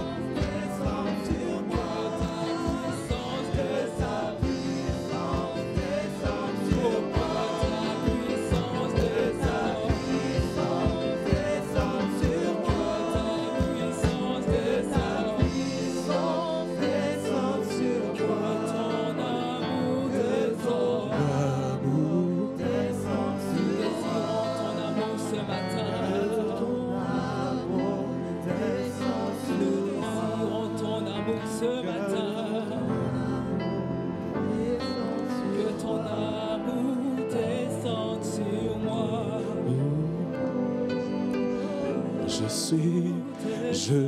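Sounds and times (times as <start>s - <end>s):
drum strikes: 0.0s - 17.0s
people singing: 0.0s - 44.0s
worship band playing: 0.0s - 44.0s.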